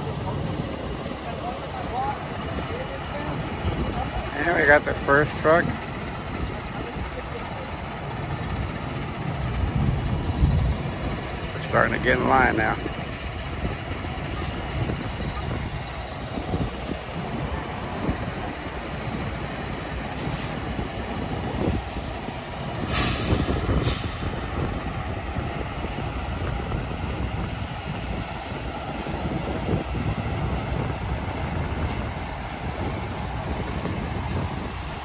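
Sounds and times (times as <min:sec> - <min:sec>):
diesel truck engines rumbling: 0:00.0 - 0:35.0
air brake hiss: 0:22.8 - 0:24.5.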